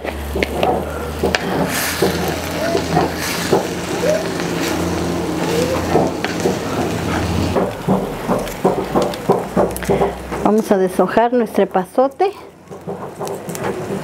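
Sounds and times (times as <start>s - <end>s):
steady low hum: 0.0s - 11.4s
wooden spatula knocking in pan: 0.1s - 10.6s, 12.7s - 14.0s.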